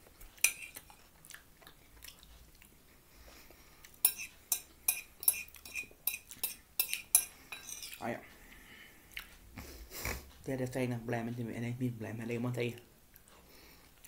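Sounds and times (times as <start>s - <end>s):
fork scraping a plate: 0.4s - 0.9s, 4.0s - 8.0s.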